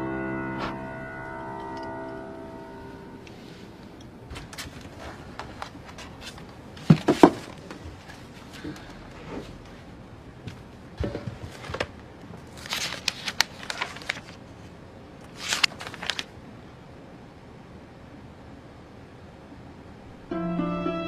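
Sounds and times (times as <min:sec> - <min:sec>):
paper pages rustling: 0:11.4 - 0:16.4.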